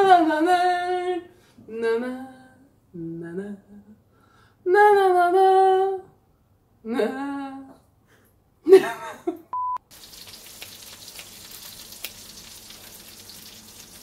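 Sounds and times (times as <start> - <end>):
woman singing wordless tune: 0.0 - 6.2, 6.8 - 7.9.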